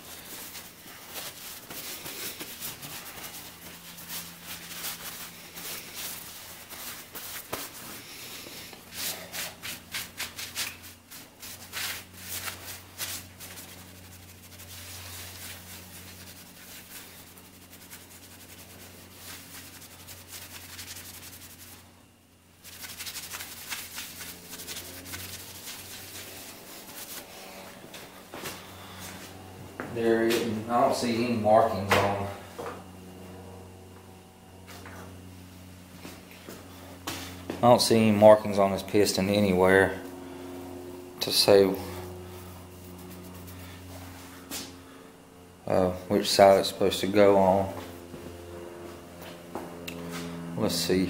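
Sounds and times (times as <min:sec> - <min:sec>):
rag wiping metal: 0:00.0 - 0:21.9, 0:22.6 - 0:27.8.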